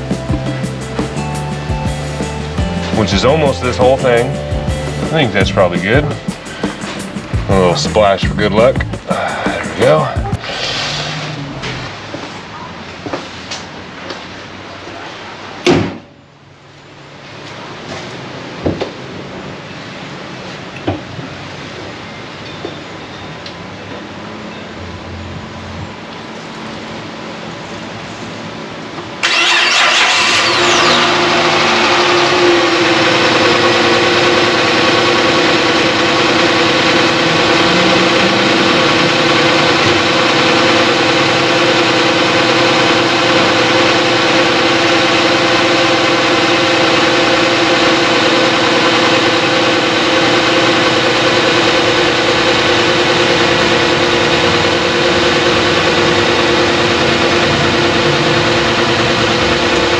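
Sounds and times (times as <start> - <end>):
car engine starting and idling: 0.0 - 12.0, 29.2 - 59.9.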